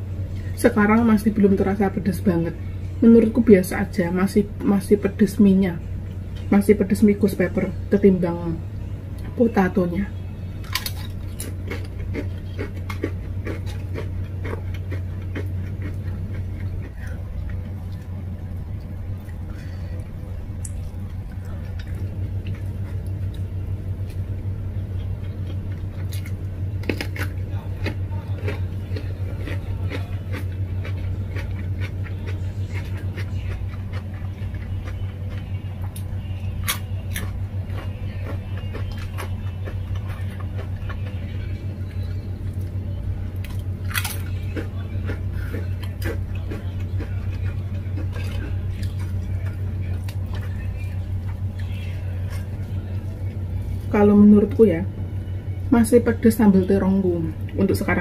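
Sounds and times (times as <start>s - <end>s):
steady low hum: 0.0s - 58.0s
chewing: 10.6s - 24.2s, 24.9s - 53.9s.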